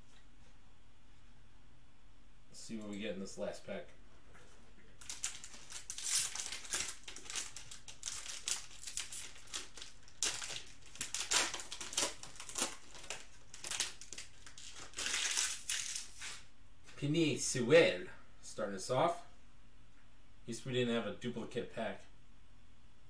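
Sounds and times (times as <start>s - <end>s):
foil pack crinkling and tearing: 5.0s - 16.4s.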